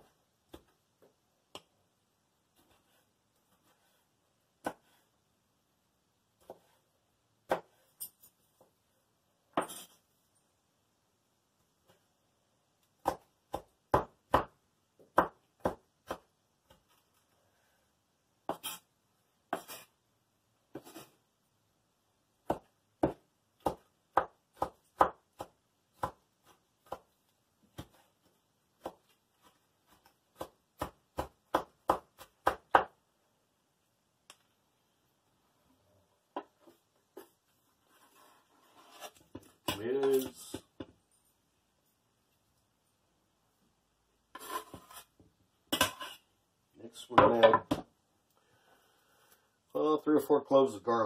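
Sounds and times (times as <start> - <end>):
knife chopping on wooden board: 7.4 - 7.8, 13.0 - 16.3, 19.5 - 19.8, 22.4 - 27.1, 30.4 - 33.0
knife scraping board: 9.6 - 10.0, 18.5 - 18.9, 19.5 - 19.9, 20.7 - 21.2, 37.9 - 40.4, 44.3 - 45.1, 45.8 - 46.2.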